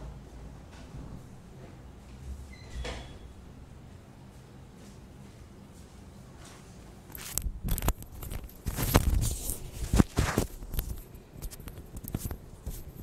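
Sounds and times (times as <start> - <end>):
handling noise on desk: 6.4 - 13.0.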